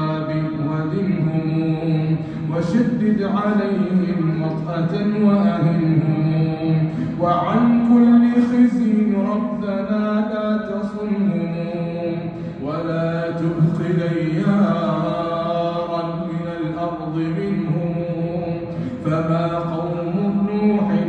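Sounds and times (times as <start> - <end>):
man chanting: 0.0 - 21.0.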